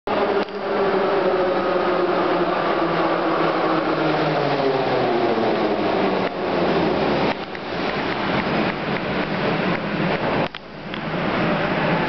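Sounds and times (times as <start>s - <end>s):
train wheels rushing: 0.1s - 10.4s.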